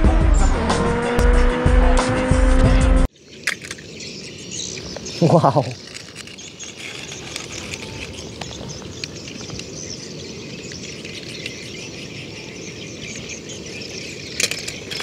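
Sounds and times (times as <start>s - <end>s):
high-pitched outdoor hiss: 3.1s - 15.0s.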